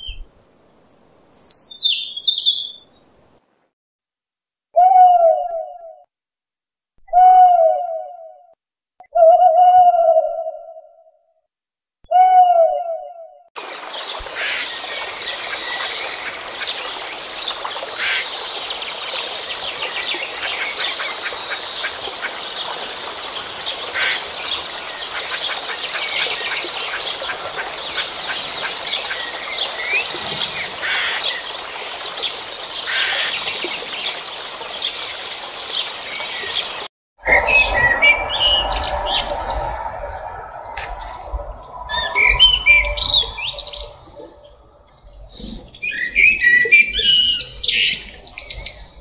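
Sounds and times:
blackbird singing: 0.9 - 2.9, 37.2 - 48.9
birds chirping in chorus: 13.6 - 49.0.

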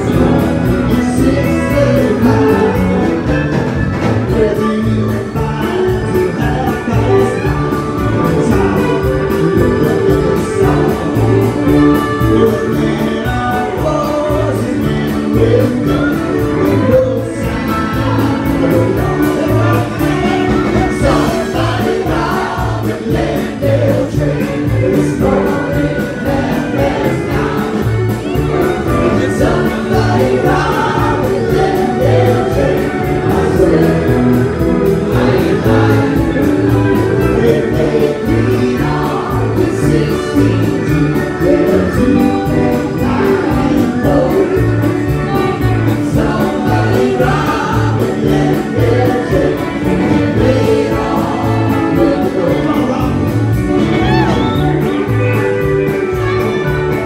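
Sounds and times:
several voices singing together: 0.0 - 3.3, 4.2 - 54.8
drums: 0.0 - 57.0
electric guitars: 0.0 - 57.0
keyboard: 0.0 - 57.0
fiddle: 53.7 - 57.0.

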